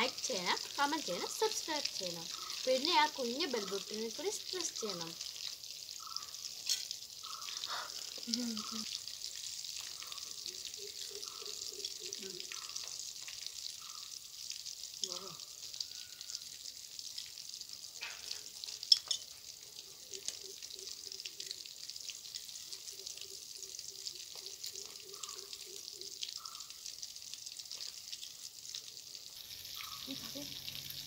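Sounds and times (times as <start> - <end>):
fish sizzling in oil: 0.0 - 31.0.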